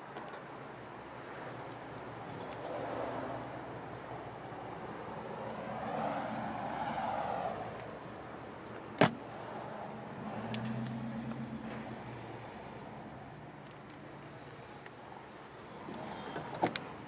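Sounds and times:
background traffic noise: 0:00.0 - 0:17.0
vehicle passing by: 0:05.1 - 0:08.0.

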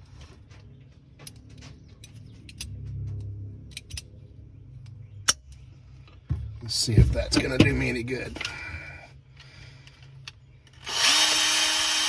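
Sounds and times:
metal pliers clicking and clinking: 0:02.0 - 0:04.1.

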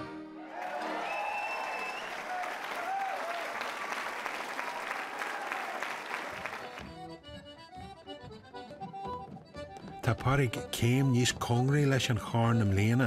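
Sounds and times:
audience applauding and cheering: 0:00.4 - 0:06.9
shrill whistle: 0:00.8 - 0:02.4.

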